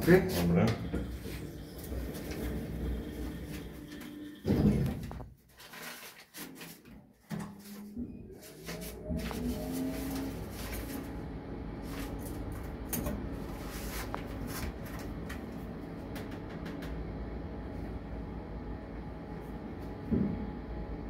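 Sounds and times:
lift rumble and hum: 0.0s - 5.2s.

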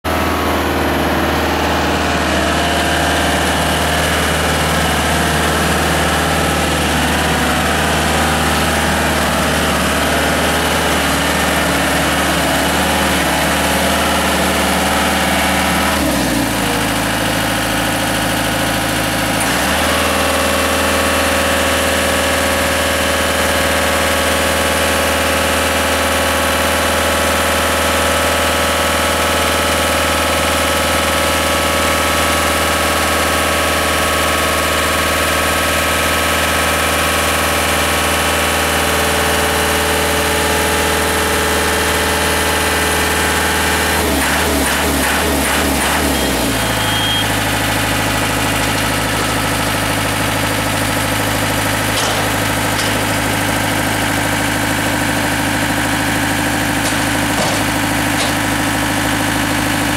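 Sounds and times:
engine running with whine: 0.0s - 59.9s
vehicle driving on gravel: 46.0s - 59.9s.

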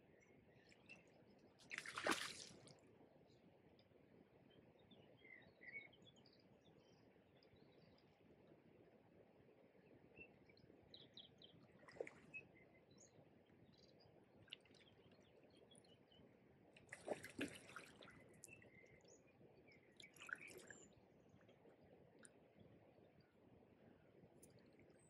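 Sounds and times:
water splashes: 1.6s - 2.7s, 16.9s - 18.2s
small birds chirping: 16.9s - 21.0s.

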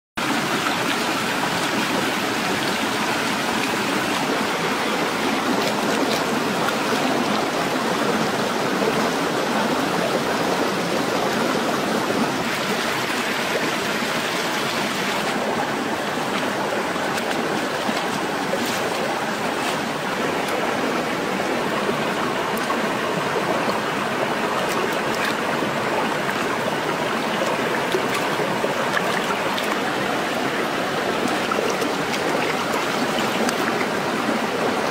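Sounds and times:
rocky stream flowing: 0.2s - 34.9s
hands splashing in water: 16.3s - 20.6s, 27.3s - 34.0s.

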